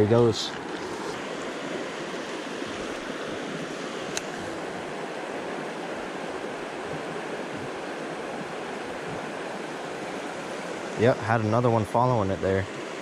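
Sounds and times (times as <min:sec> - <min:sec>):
creek water rushing over rocks: 0:00.0 - 0:13.0
sharp click: 0:04.1 - 0:04.3.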